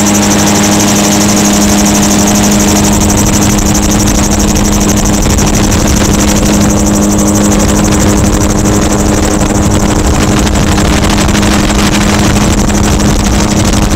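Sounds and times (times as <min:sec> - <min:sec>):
engine and propeller drone: 0:00.0 - 0:13.9
wind noise on microphone: 0:00.0 - 0:13.9.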